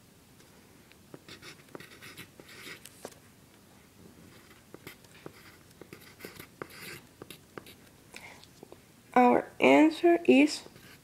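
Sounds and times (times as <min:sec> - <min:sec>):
pen scratching on paper: 0:01.2 - 0:02.9, 0:04.3 - 0:07.8, 0:10.8 - 0:11.0.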